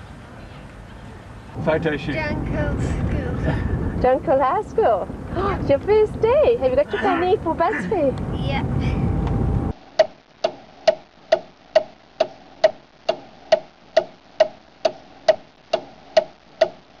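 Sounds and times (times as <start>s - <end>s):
car interior rumble: 0.0s - 9.8s
clock-like ticking: 10.0s - 16.9s.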